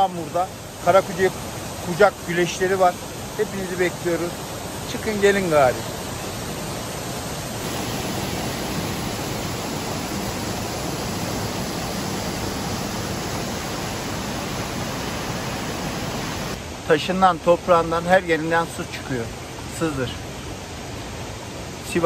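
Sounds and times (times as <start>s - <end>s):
waterfall rushing: 0.0s - 17.1s.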